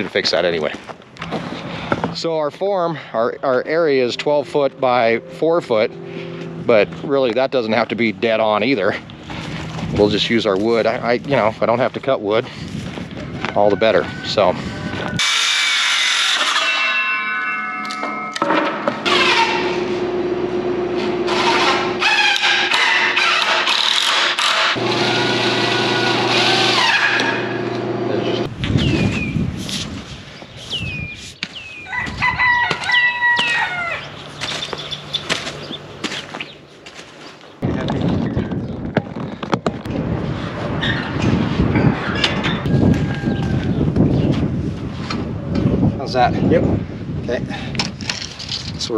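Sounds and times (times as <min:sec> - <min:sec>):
circular saw cutting wood: 0:15.2 - 0:17.0, 0:19.0 - 0:28.5
cordless drill driving screws: 0:21.3 - 0:27.4
fowl calling: 0:31.8 - 0:36.6.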